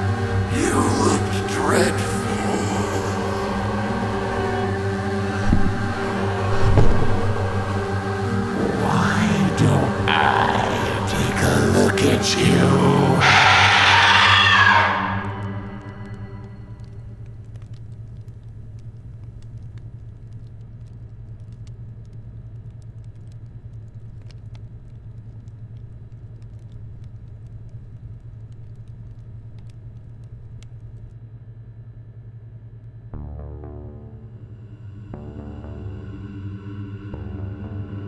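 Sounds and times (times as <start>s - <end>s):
fire crackling and popping: 0.0s - 13.0s, 14.7s - 31.5s
sustained low music chord: 0.0s - 13.2s, 33.1s - 38.0s
low rumbling drone: 0.0s - 38.0s.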